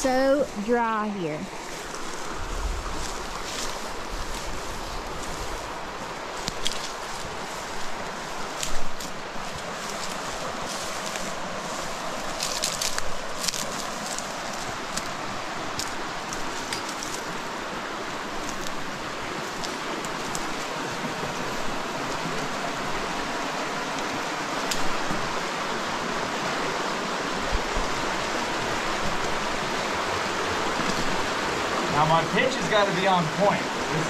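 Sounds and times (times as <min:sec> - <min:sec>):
footsteps on dry grass and stones: 0:00.0 - 0:26.7
creek rushing over stones: 0:00.0 - 0:34.0.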